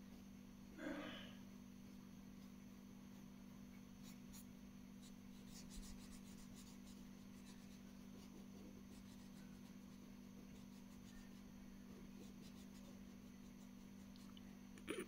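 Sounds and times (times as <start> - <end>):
steady low hum: 0.0 - 15.0
marker scratching on paper: 4.0 - 14.2.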